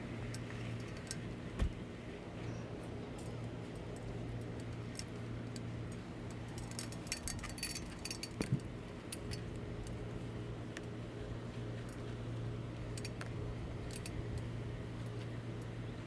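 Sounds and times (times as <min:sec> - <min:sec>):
steady low hum: 0:00.0 - 0:16.0
metal ladder clicks and rattles: 0:03.2 - 0:09.4.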